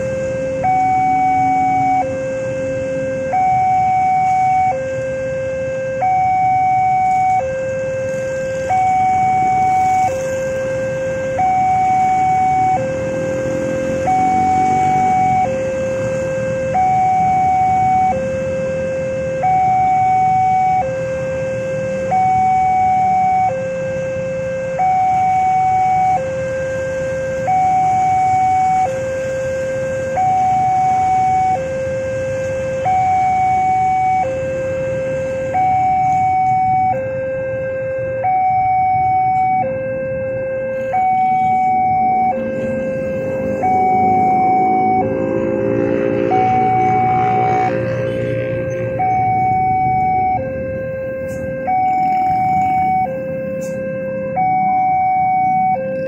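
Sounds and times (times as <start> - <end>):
railroad crossing two-tone alarm: 0.0 - 56.0
motorbike and car engines idling: 27.0 - 56.0.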